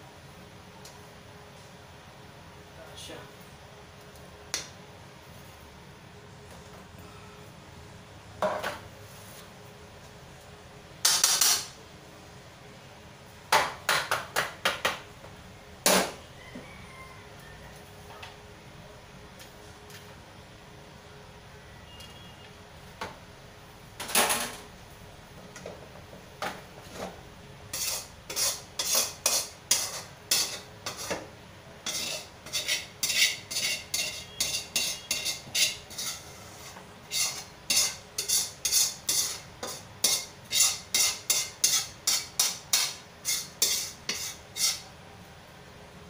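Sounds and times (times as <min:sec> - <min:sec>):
metal spatula scraping wok: 0:27.7 - 0:31.2, 0:31.8 - 0:44.9.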